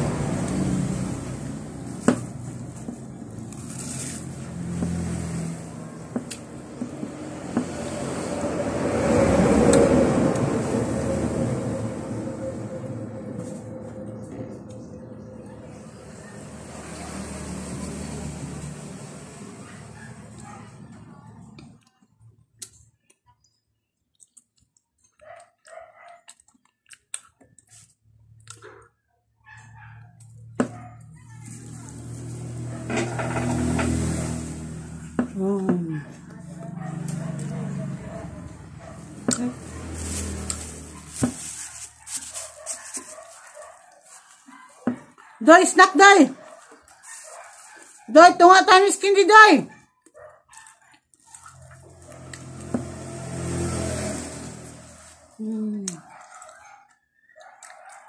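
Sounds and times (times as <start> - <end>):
person chewing bread: 24.0 - 29.0, 55.9 - 58.0
wet mouth clicks and smacks: 26.2 - 27.7.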